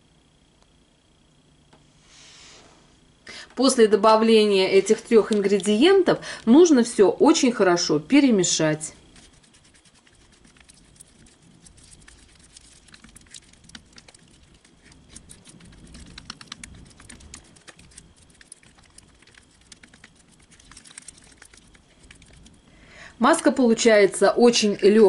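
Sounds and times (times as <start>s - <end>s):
paste squishing: 9.0s - 22.6s.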